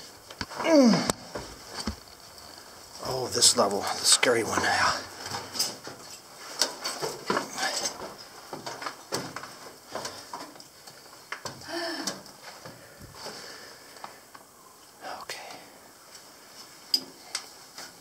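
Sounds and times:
person grunting: 0:00.6 - 0:01.1.

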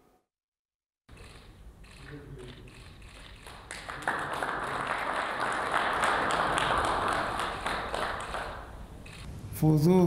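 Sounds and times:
audience applause: 0:03.5 - 0:08.9.

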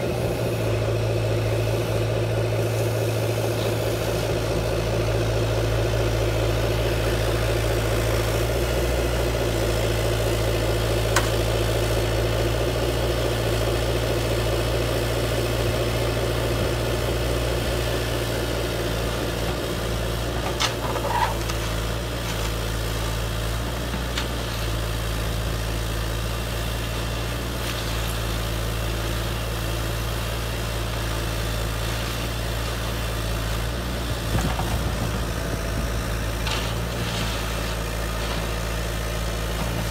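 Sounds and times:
model engine idle drone: 0:00.0 - 0:20.0, 0:28.3 - 0:36.7.

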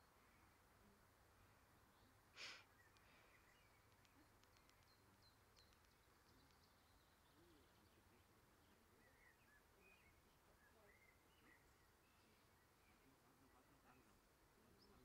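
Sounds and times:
faint high ticks: 0:03.8 - 0:06.6.

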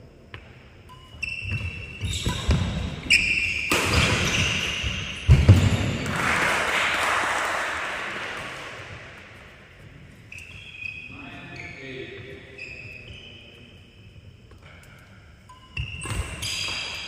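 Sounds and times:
shoes squeaking on wooden floor: 0:00.9 - 0:05.8, 0:10.1 - 0:14.2, 0:15.7 - 0:17.0.

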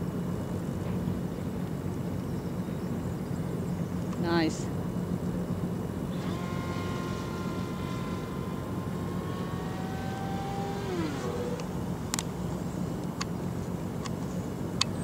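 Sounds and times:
electric motor and propeller whining: 0:05.6 - 0:14.0.

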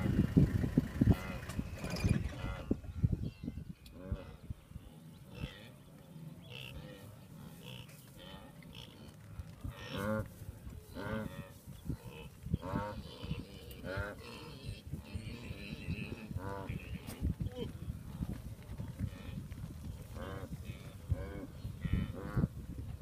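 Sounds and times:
wildebeest grunting: 0:01.0 - 0:03.0, 0:03.9 - 0:09.1, 0:10.9 - 0:17.8, 0:20.1 - 0:22.6.

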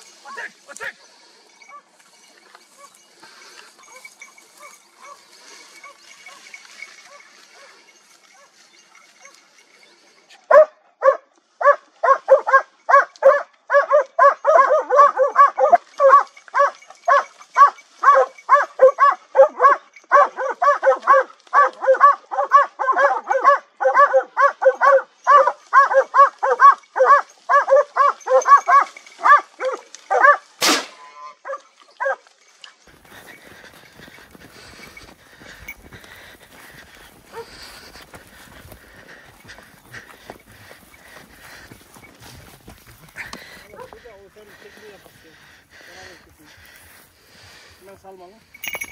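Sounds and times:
dogs barking: 0:03.8 - 0:08.6, 0:10.4 - 0:30.5, 0:31.4 - 0:32.2, 0:33.0 - 0:42.1, 0:43.1 - 0:46.7
gunshot: 0:30.6 - 0:31.1.

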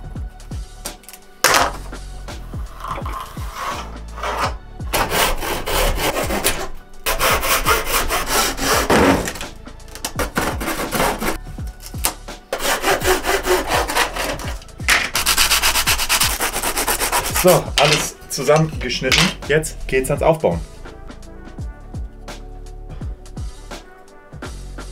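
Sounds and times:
saw cutting plywood: 0:02.6 - 0:18.1.

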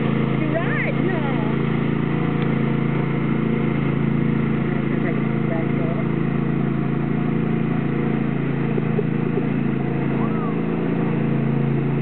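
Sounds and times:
riding lawn mower engine humming: 0:00.0 - 0:12.0.

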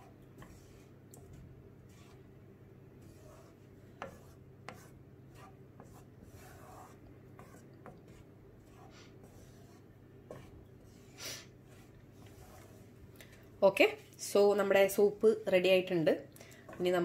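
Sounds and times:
spatula scraping a pan: 0:00.0 - 0:02.4, 0:03.0 - 0:13.0
faint steady hum: 0:00.0 - 0:17.0.

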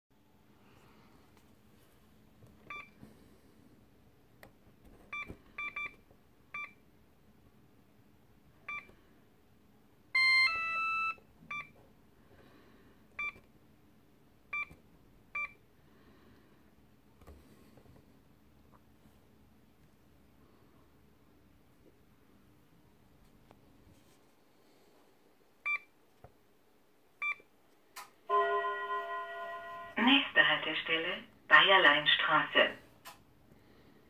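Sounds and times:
keypad beeps: 0:02.7 - 0:03.0, 0:05.1 - 0:06.0, 0:06.6 - 0:06.8, 0:08.7 - 0:08.9, 0:10.2 - 0:11.8, 0:13.2 - 0:13.4, 0:14.5 - 0:14.8, 0:15.4 - 0:15.6, 0:27.2 - 0:27.4
two-tone signal: 0:28.3 - 0:30.0.

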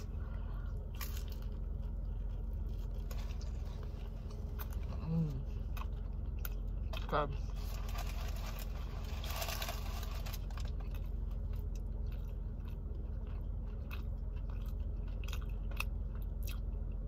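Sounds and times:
chewing and crunching sandwich: 0:00.0 - 0:17.0.

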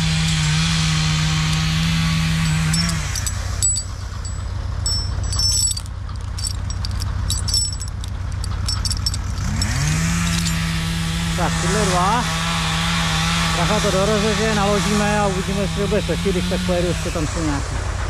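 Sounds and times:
chainsaw revving and idling: 0:00.0 - 0:03.7, 0:09.2 - 0:18.0
chain clinking and jangling: 0:00.0 - 0:12.1.

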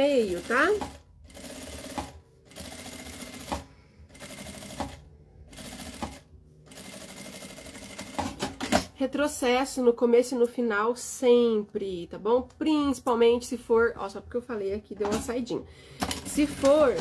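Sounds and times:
sewing machine sewing: 0:00.0 - 0:08.9, 0:16.0 - 0:17.0.

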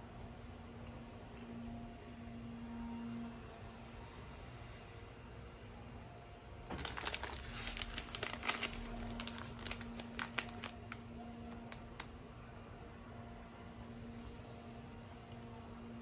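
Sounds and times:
plastic wrapper crinkling: 0:06.7 - 0:12.1.

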